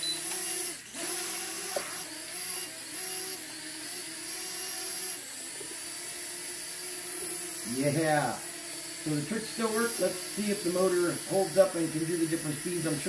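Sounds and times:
drone motors whining: 0.0s - 13.0s.

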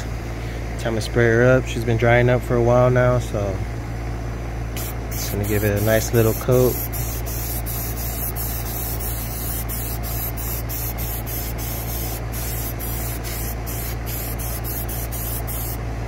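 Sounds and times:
steady low hum: 0.0s - 16.0s
aerosol can spraying hiss: 4.8s - 15.8s.

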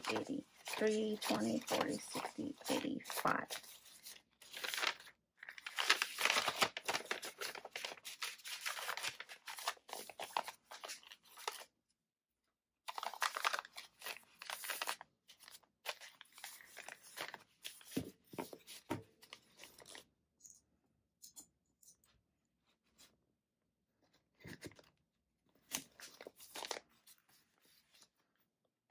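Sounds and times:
paper rustling and crinkling: 0.0s - 11.7s, 12.9s - 20.1s, 25.6s - 28.2s.

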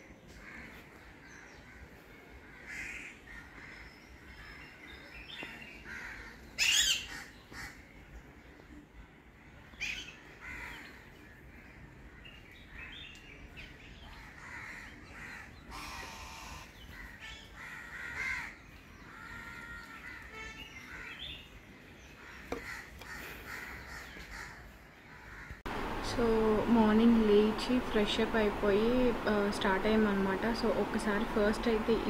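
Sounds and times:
crows cawing: 1.7s - 4.5s, 5.8s - 7.8s, 10.4s - 12.2s, 14.2s - 21.3s, 22.2s - 25.7s
other bird calls: 2.5s - 7.9s.

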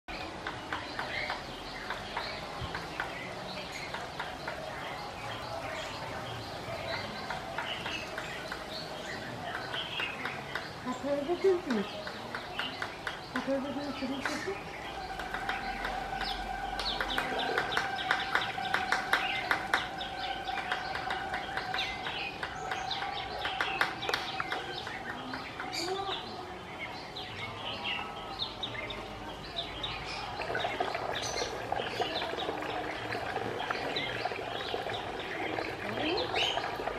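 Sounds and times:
birds chirping and twittering: 0.0s - 36.9s
woodpecker pecking at bamboo: 7.2s - 25.7s.

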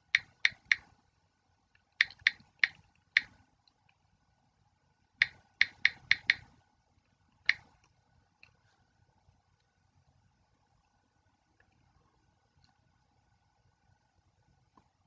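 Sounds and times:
keyboard typing clicks: 0.0s - 0.9s, 2.0s - 3.4s, 5.2s - 6.5s.

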